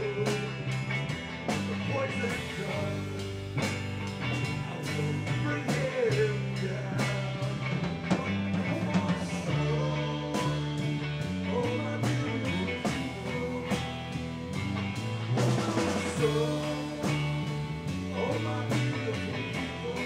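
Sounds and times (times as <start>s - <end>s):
live rock band playing: 0.0s - 20.0s.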